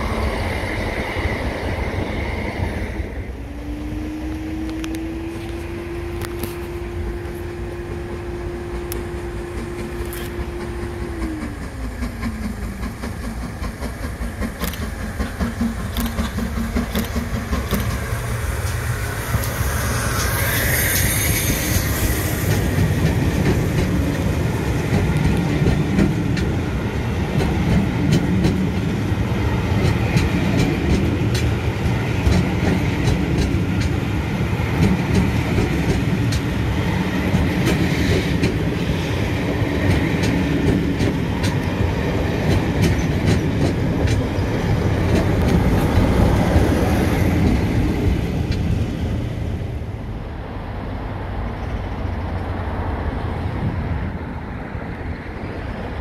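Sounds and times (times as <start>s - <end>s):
train coaches rumbling past: 0.0s - 56.0s
wheels clicking over rail joints: 8.7s - 48.9s.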